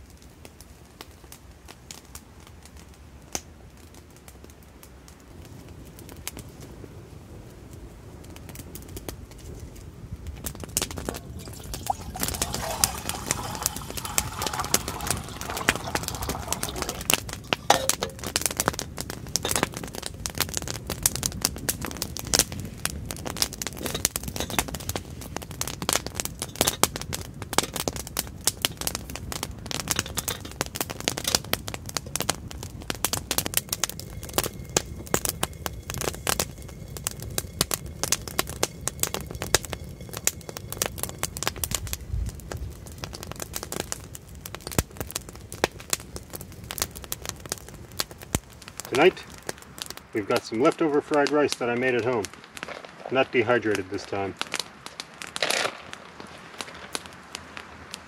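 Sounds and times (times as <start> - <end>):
campfire crackling and popping: 0.0 - 58.0
water pouring into metal kettle: 11.1 - 18.2.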